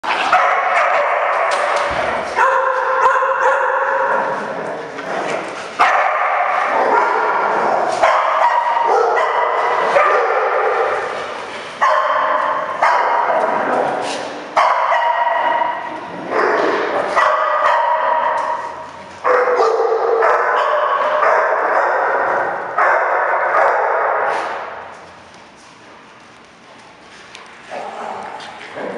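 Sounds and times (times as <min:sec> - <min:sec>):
dogs barking and yipping: 0:00.2 - 0:04.4, 0:05.7 - 0:24.3.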